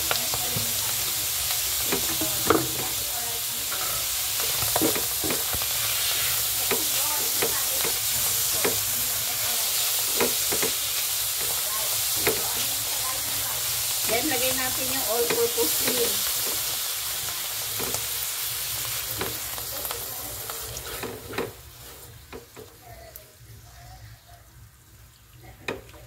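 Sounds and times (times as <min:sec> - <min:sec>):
mushrooms sizzling in oil: 0:00.0 - 0:26.0
spatula scraping a pan: 0:03.6 - 0:16.8, 0:20.6 - 0:22.6.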